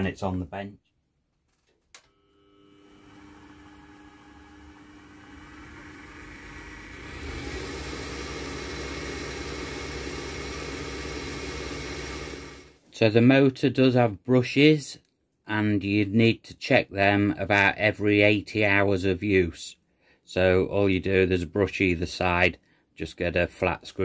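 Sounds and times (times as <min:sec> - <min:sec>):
lathe motor whining: 0:02.3 - 0:12.8.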